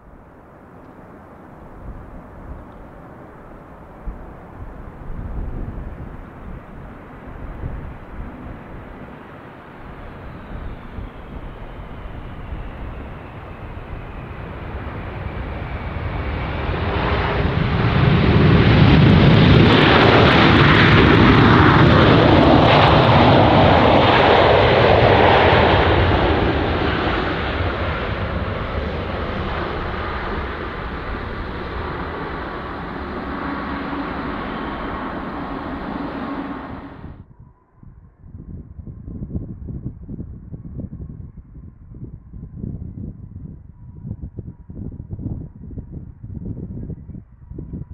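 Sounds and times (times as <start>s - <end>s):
jet engines passing overhead: 0.0s - 37.2s.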